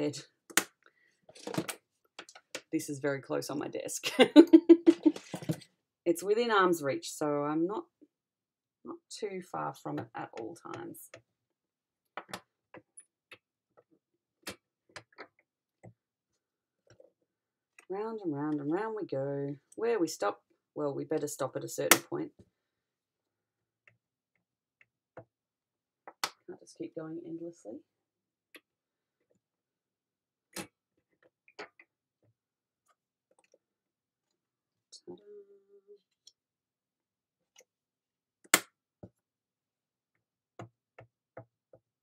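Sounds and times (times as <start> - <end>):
plastic tools clicking and tapping: 30.6 - 31.9.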